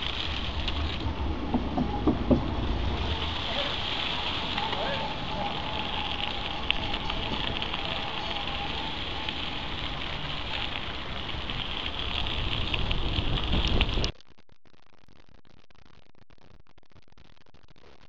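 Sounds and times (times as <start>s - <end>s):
wind buffeting microphone: 0.0s - 14.1s
bike tyres on dirt: 0.0s - 14.2s.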